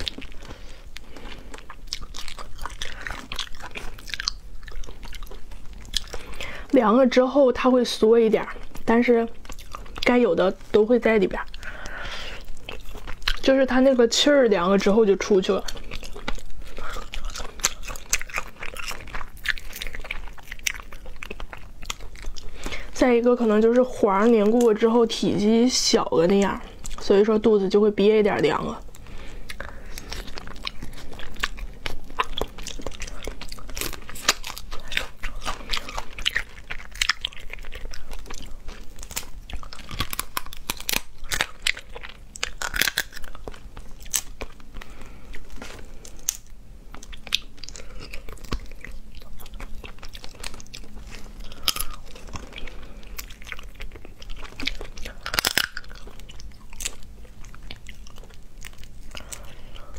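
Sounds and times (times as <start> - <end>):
biting and chewing: 0.0 - 25.0, 28.3 - 59.9
crustacean shells cracking: 29.0 - 45.0, 46.0 - 59.5.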